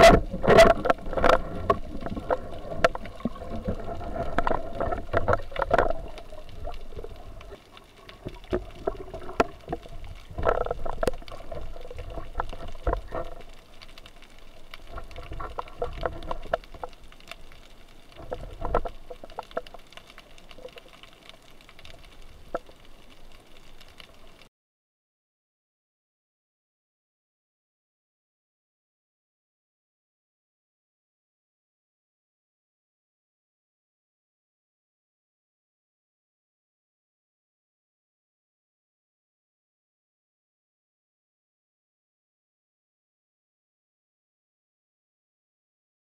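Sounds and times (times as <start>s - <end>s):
sharp clicks and knocks: 0.0s - 7.6s
underwater water gurgling: 0.0s - 24.5s.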